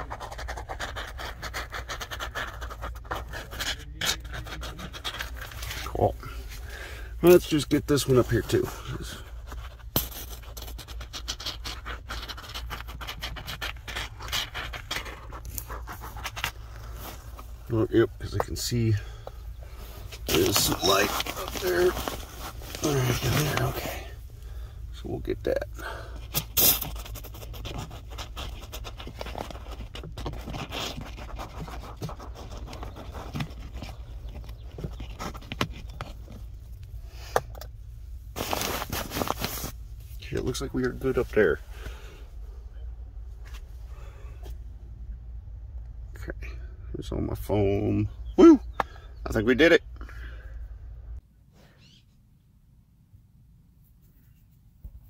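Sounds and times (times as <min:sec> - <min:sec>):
can rubbing against insulation: 0:00.0 - 0:37.0, 0:38.3 - 0:42.0.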